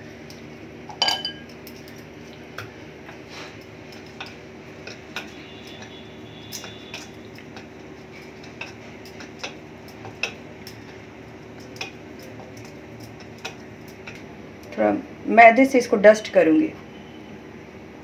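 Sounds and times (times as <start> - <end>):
kitchen utensils clinking: 0.9 - 1.6.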